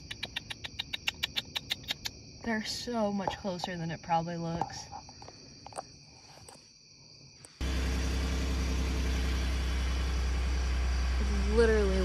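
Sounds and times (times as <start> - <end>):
car engine idling: 7.6 - 12.0.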